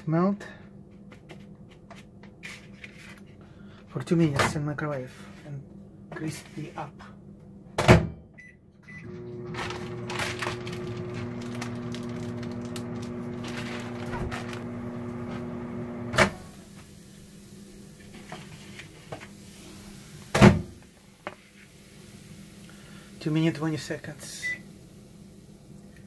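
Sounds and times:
microwave oven humming: 0:08.4 - 0:18.1.

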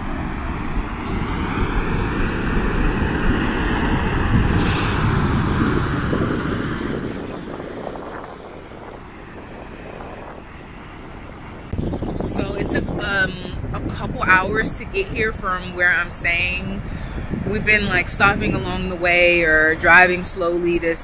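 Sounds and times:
steady rushing noise: 0:00.0 - 0:21.0
wind buffeting microphone: 0:00.0 - 0:21.0.

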